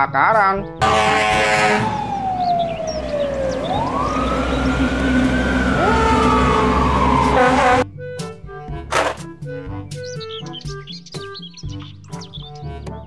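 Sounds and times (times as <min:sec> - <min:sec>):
music: 0:00.0 - 0:01.4, 0:07.2 - 0:13.0
fire engine siren wailing: 0:00.8 - 0:07.8.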